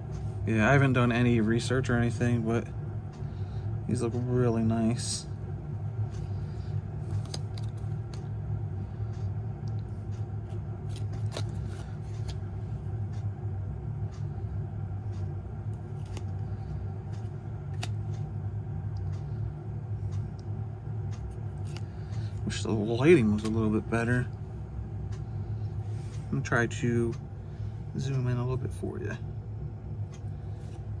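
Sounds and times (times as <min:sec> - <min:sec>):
steady low hum: 0:00.0 - 0:31.0
cards clicking and rustling: 0:07.0 - 0:08.3, 0:10.5 - 0:12.5, 0:15.7 - 0:18.2, 0:21.2 - 0:22.5.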